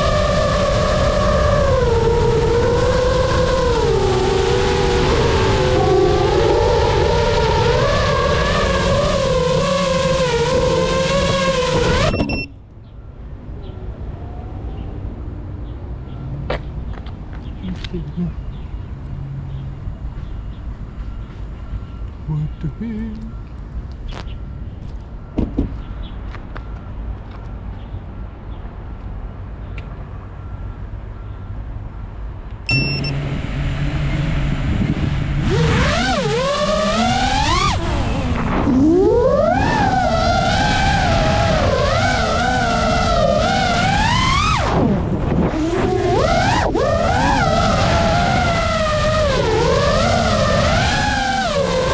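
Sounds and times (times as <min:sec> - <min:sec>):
drone motors whining: 0:00.0 - 0:12.7, 0:32.7 - 0:51.9
short beep: 0:12.1 - 0:13.2, 0:32.7 - 0:33.2.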